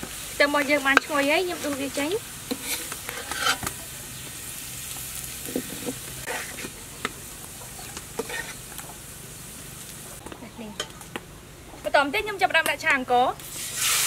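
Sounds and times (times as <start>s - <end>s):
garlic sizzling in oil: 0.0s - 11.2s, 12.0s - 14.0s
metal ladle scraping wok: 0.5s - 3.9s, 5.4s - 6.8s, 7.8s - 8.8s, 13.6s - 14.0s.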